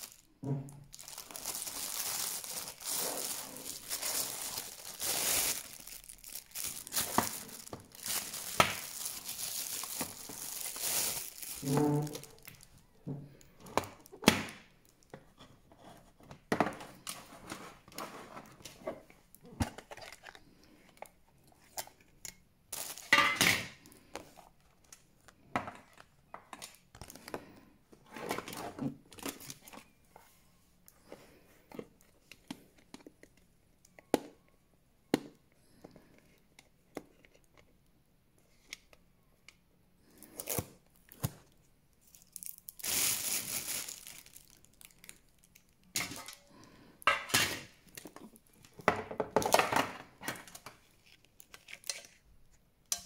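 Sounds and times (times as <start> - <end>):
plastic wrap crinkling: 0.0 - 13.0, 22.7 - 23.4, 29.0 - 30.0, 40.1 - 46.6.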